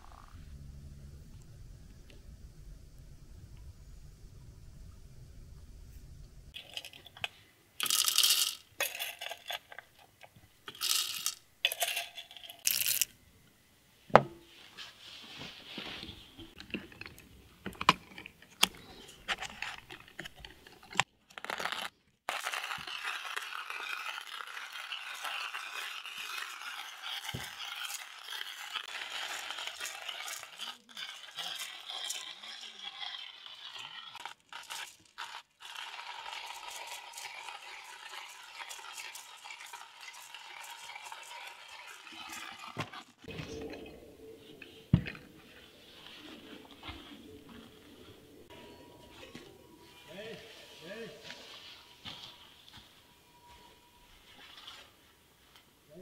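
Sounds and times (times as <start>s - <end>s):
rustling: 14.4s - 16.6s, 41.5s - 55.7s.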